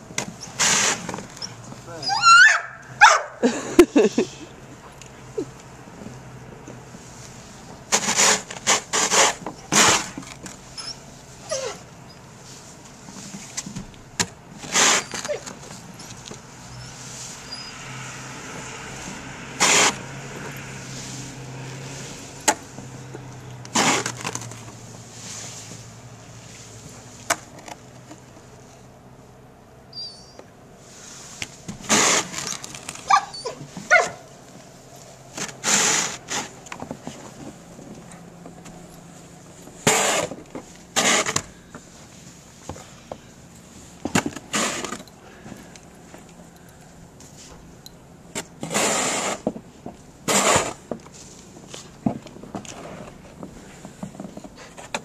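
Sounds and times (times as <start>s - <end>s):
snow shovel scraping snow: 0.4s - 1.1s, 7.0s - 13.4s, 14.6s - 15.8s, 18.5s - 22.4s, 23.7s - 27.1s, 30.8s - 34.2s, 35.3s - 36.6s, 39.8s - 42.3s, 44.3s - 45.4s, 48.4s - 49.6s, 50.2s - 52.0s, 52.7s - 53.9s.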